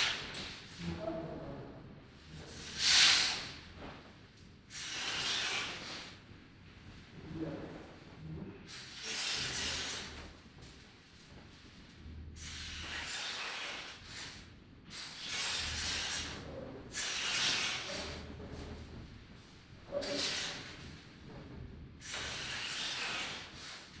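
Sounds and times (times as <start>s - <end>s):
rustling hiss: 2.4s - 7.0s
low rumble: 20.8s - 22.0s.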